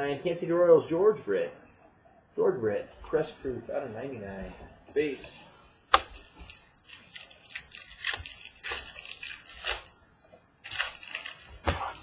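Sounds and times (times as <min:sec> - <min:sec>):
wrapper crinkling and tearing: 0:06.4 - 0:10.0, 0:10.6 - 0:12.0.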